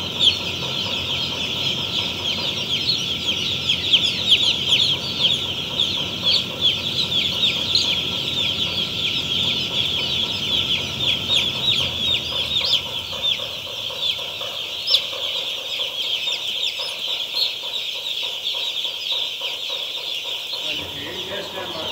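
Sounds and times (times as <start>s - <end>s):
low hum: 0.0s - 15.7s
chicks peeping: 0.0s - 21.9s.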